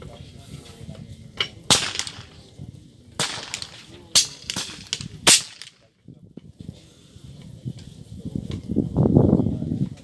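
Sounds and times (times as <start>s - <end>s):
air rifle shots: 1.7s - 2.5s, 3.2s - 5.7s.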